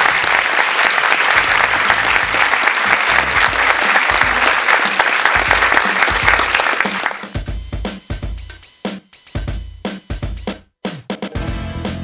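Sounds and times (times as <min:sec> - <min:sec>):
audience applauding: 0:00.0 - 0:07.5
pulsing bass music: 0:03.1 - 0:03.6, 0:11.4 - 0:12.0.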